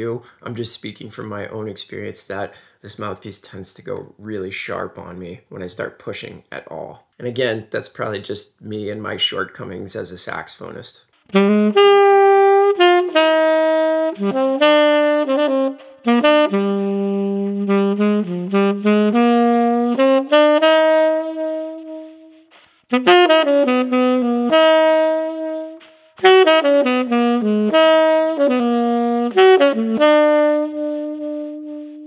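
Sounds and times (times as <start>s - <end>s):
tenor saxophone playing jazz: 11.2s - 32.0s.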